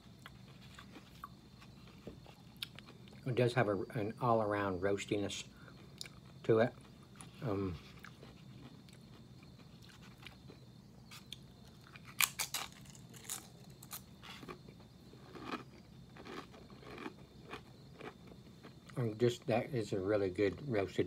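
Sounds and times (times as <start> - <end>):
chip crunching while chewed: 5.8 - 19.0.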